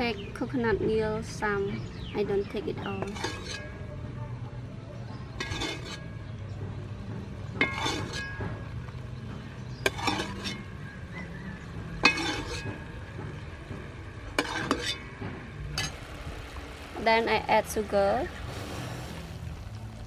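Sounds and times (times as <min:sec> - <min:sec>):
metal ladle clinking on pot and bowl: 0:02.8 - 0:03.8, 0:05.4 - 0:06.2, 0:07.5 - 0:08.8, 0:09.8 - 0:10.8, 0:12.0 - 0:13.0, 0:14.3 - 0:16.0.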